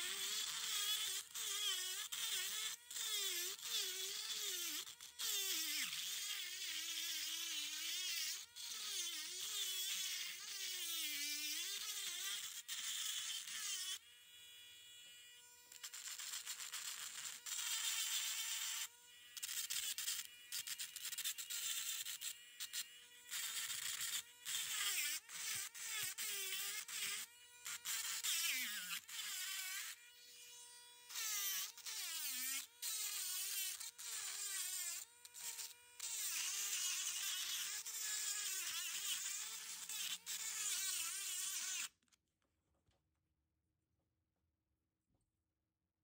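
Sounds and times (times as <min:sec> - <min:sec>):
rotary tool grinding rock: 0:00.0 - 0:14.0, 0:15.6 - 0:30.4, 0:31.0 - 0:42.0.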